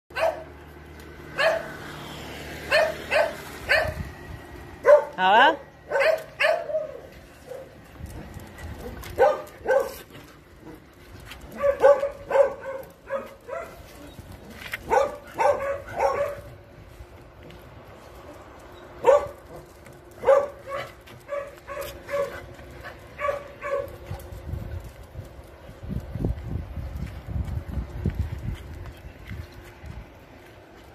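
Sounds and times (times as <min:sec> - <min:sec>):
dogs barking and yipping: 0:00.1 - 0:16.7, 0:18.1 - 0:24.5.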